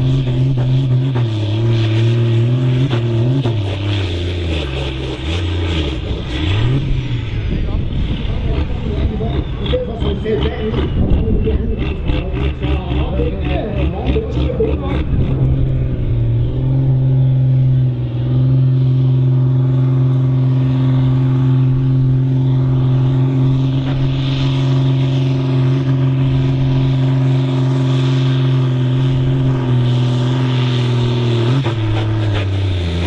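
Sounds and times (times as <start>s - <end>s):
tractor diesel engine labouring: 0.0s - 33.0s.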